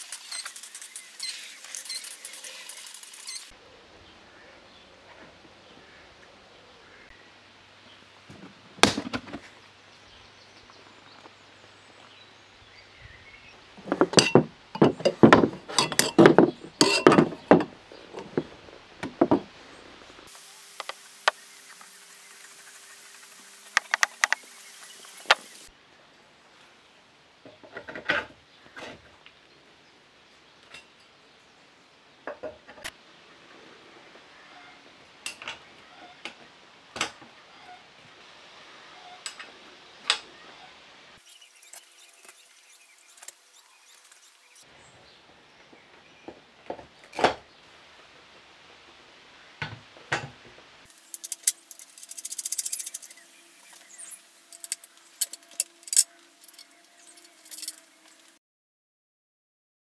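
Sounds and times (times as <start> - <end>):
metal parts clinking and knocking: 13.8 - 17.7, 51.0 - 53.2, 54.5 - 57.8.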